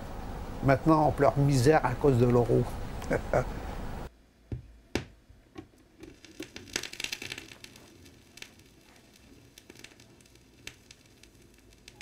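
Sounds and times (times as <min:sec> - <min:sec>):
vinyl record crackles and pops: 0:05.5 - 0:12.0.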